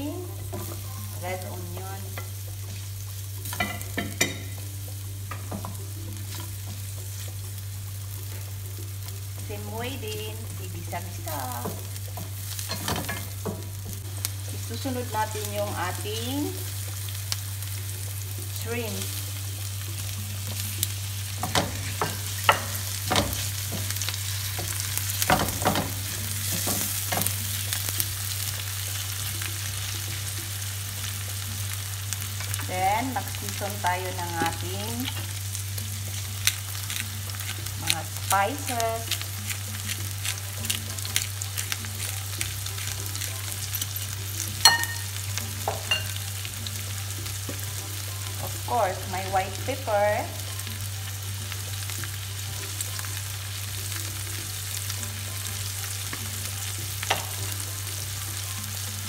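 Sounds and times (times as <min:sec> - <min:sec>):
light sizzle: 0:00.0 - 0:59.0.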